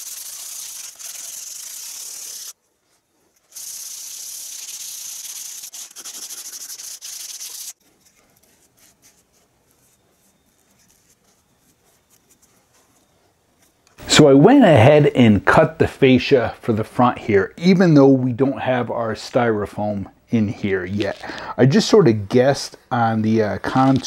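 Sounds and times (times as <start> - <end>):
sponge rubbing over spackle: 0.0 - 13.2.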